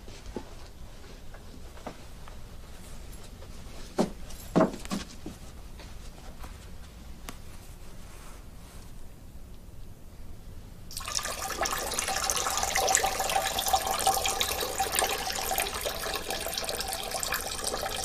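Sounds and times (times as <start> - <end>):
urine splashing into toilet: 10.9 - 18.0.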